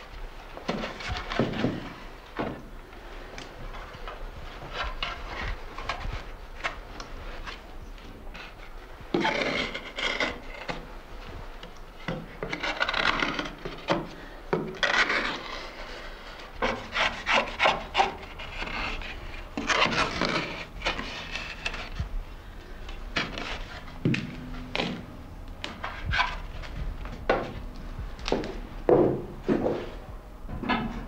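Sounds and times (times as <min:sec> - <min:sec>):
knife scraping wood: 0:08.3 - 0:10.8, 0:12.4 - 0:22.0.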